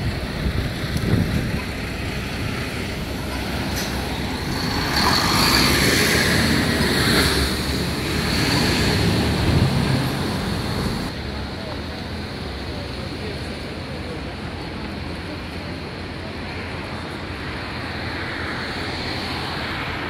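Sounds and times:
cars driving past: 0.0 - 11.8.

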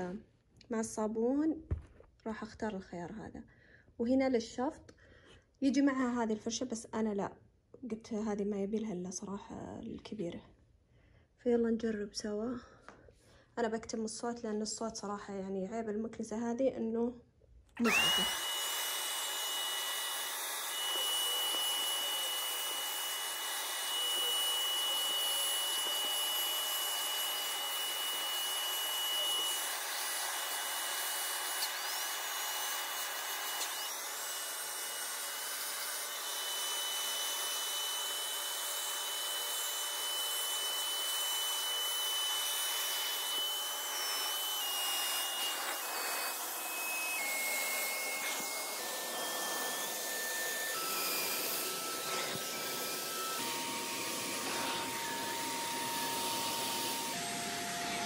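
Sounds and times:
upholstery cleaner motor whine: 17.8 - 58.0
rushing suction noise: 43.6 - 58.0.

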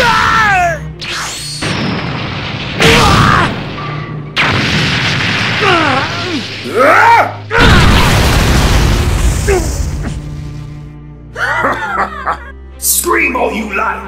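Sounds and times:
heavy crashing boom: 1.6 - 3.8, 4.4 - 5.9, 7.6 - 10.6.

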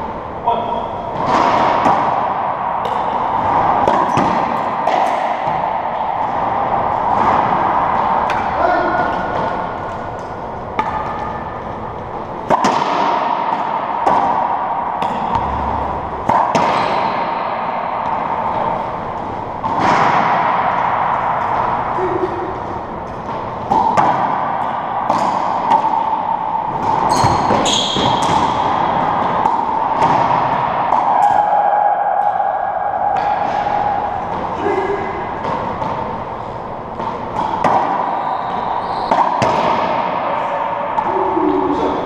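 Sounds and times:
steady hum: 0.0 - 42.0
racquet striking ball: 0.6 - 42.0
ball hitting walls: 1.1 - 31.6, 33.1 - 41.4
shoe squeaks: 27.1 - 28.3, 38.1 - 39.1.

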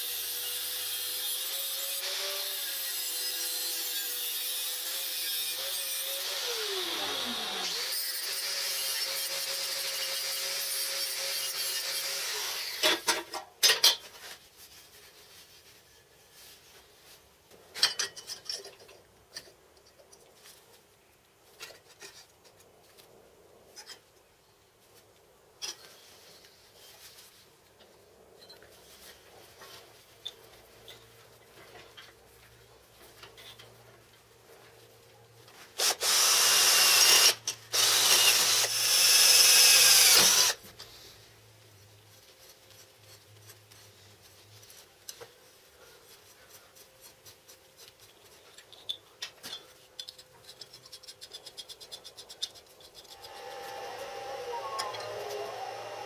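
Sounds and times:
power tool whining on metal: 0.0 - 12.9, 35.8 - 40.6, 53.2 - 56.0
metal parts clicking and tapping: 48.5 - 53.4.

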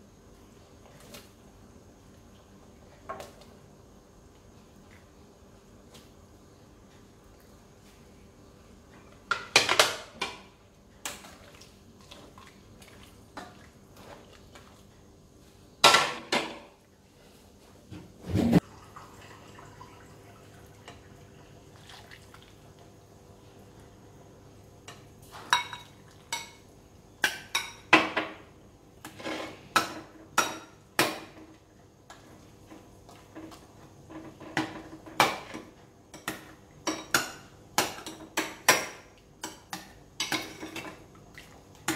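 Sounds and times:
dishes clattering: 9.3 - 10.5, 33.3 - 41.0.

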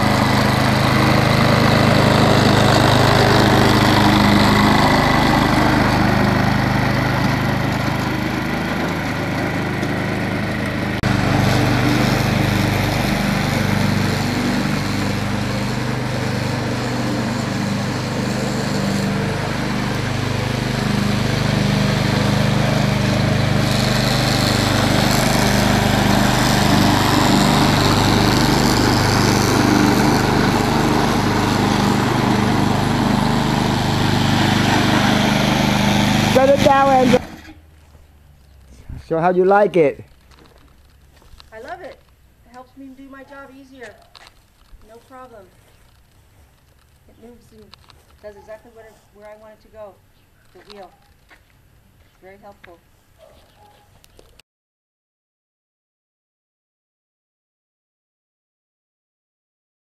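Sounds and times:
string trimmer engine running: 0.0 - 42.6.

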